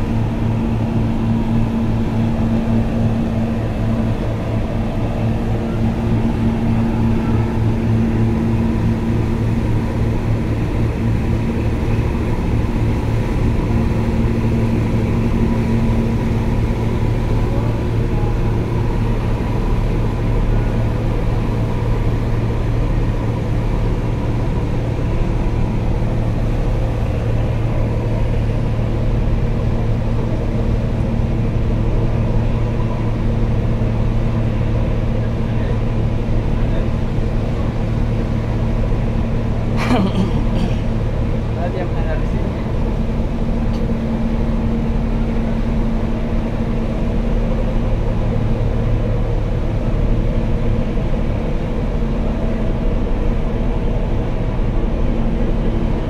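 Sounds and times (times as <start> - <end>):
ship engines droning: 0.0 - 56.0.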